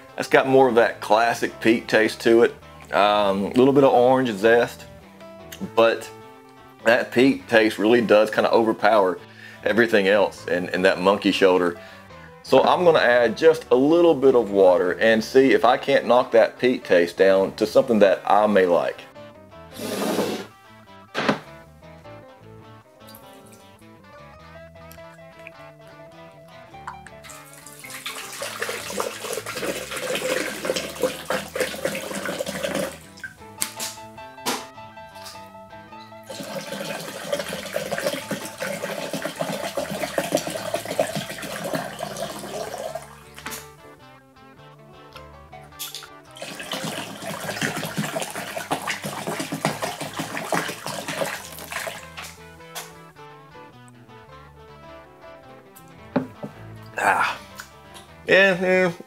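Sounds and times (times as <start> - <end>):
background music: 0.0 - 59.0
water pouring into glass vessel: 27.2 - 33.4, 36.2 - 43.3, 46.3 - 52.2.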